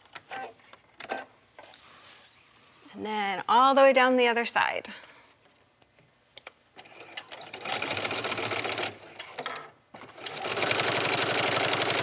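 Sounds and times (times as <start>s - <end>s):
sewing machine stitching: 6.8s - 9.4s, 10.0s - 12.0s.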